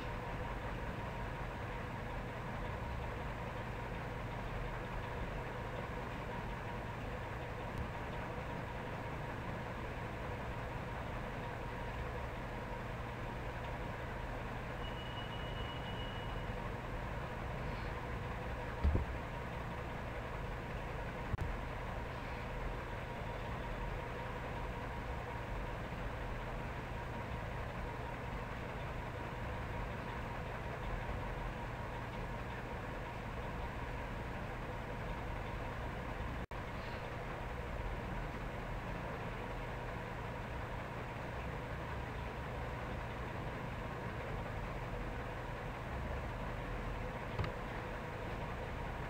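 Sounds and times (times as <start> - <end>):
steady hum and hiss: 0.0 - 49.0
faint high tone: 14.8 - 16.6.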